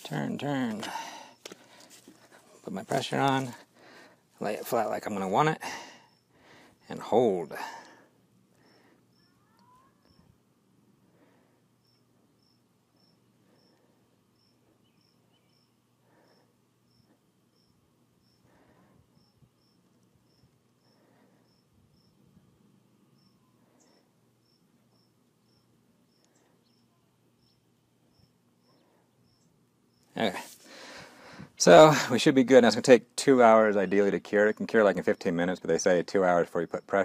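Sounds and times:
insect chirping faintly: 0:00.1 - 0:31.4
soft rustles: 0:00.7 - 0:03.7.

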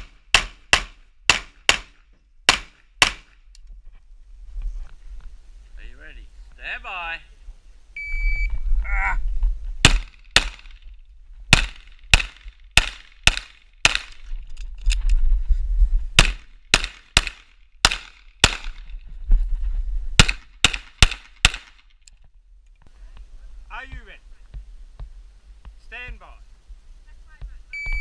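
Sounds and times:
pistol shots: 0:00.0 - 0:03.3, 0:09.8 - 0:10.8, 0:11.5 - 0:14.2, 0:16.2 - 0:18.8, 0:20.2 - 0:21.8.

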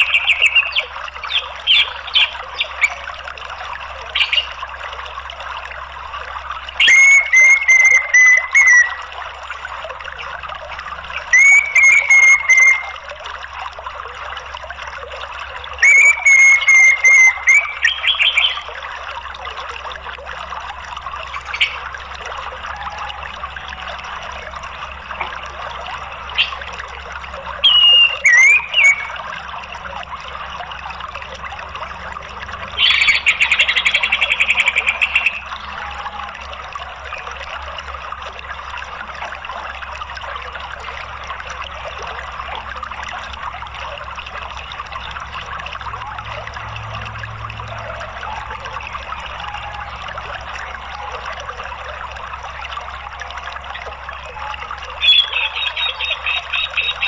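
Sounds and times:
thrush whistling calls: 0:00.0 - 0:03.1, 0:04.1 - 0:04.6, 0:06.6 - 0:10.4, 0:11.0 - 0:13.1, 0:15.5 - 0:18.8, 0:21.2 - 0:29.7, 0:32.6 - 0:37.4, 0:54.1 - 0:57.0
running water: 0:00.0 - 0:57.0.

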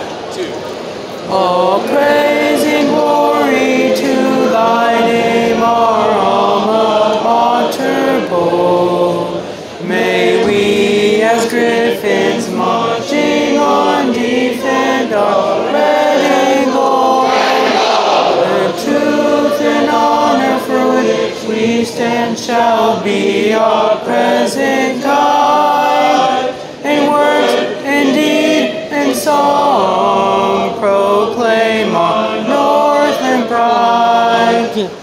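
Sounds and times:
choir singing long notes: 0:01.2 - 0:35.0.

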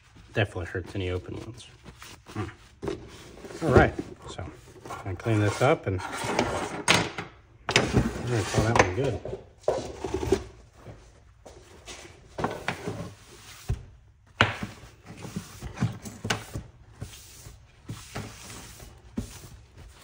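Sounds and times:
cloth wiping bench: 0:00.0 - 0:05.8, 0:14.7 - 0:20.0.

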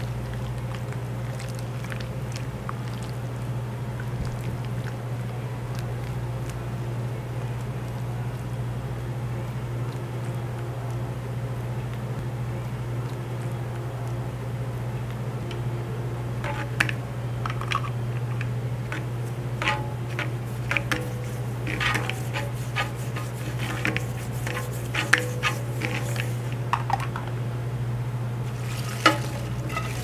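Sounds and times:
steady low hum: 0:00.0 - 0:30.0
dishes and utensils clinking: 0:28.6 - 0:30.0.

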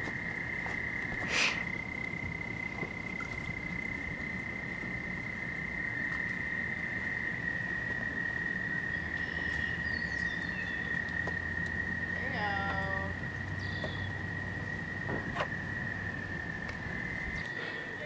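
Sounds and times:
high-pitched insect trill: 0:00.0 - 0:18.0
faint bird chirps: 0:13.6 - 0:14.2.

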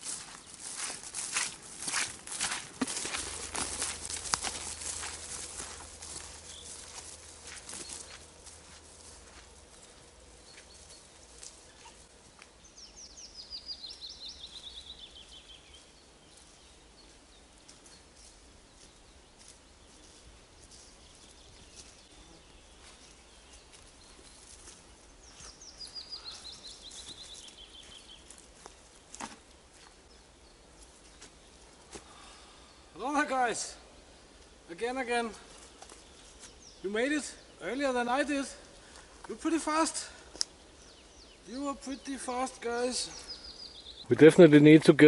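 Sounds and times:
faint ticks and rustles: 0:00.0 - 0:12.9, 0:13.8 - 0:32.3, 0:34.3 - 0:36.8
songbird singing: 0:00.0 - 0:45.0.

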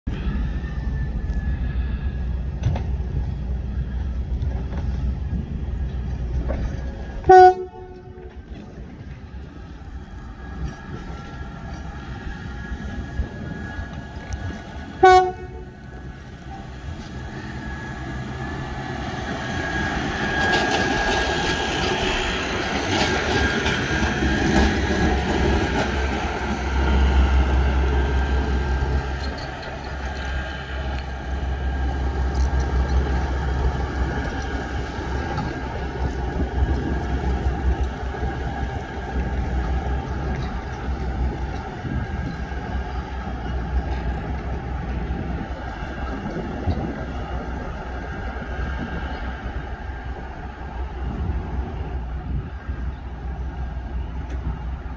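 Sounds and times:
diesel rail machines running: 0:00.1 - 0:54.9
horn blast: 0:07.3 - 0:08.3, 0:15.0 - 0:15.8
wheels clicking on rails: 0:07.9 - 0:54.9.

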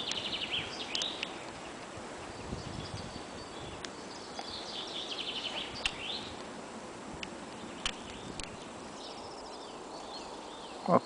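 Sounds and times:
background hiss: 0:00.0 - 0:11.0
songbirds singing: 0:00.0 - 0:11.0
sharp clicks: 0:00.9 - 0:01.6.

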